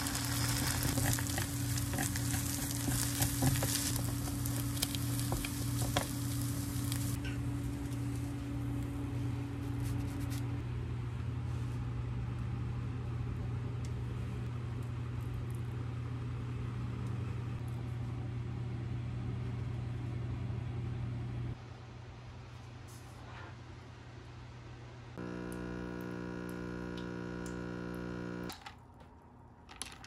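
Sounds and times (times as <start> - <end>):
kitchen appliance humming: 0.0 - 8.9, 25.2 - 28.7.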